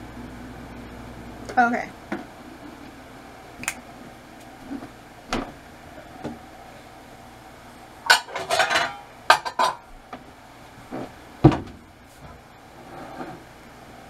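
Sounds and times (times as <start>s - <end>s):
dishes and pans clinking: 8.0s - 9.9s
kitchenware clattering: 8.0s - 9.9s.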